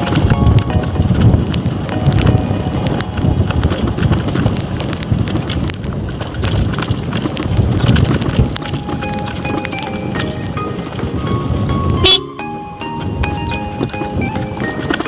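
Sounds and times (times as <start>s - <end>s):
wind buffeting microphone: 0.0s - 9.4s.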